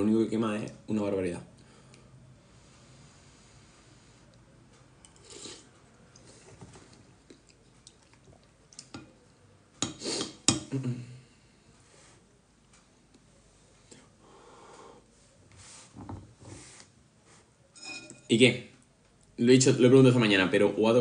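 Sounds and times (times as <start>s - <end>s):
eating sounds: 5.1s - 9.0s.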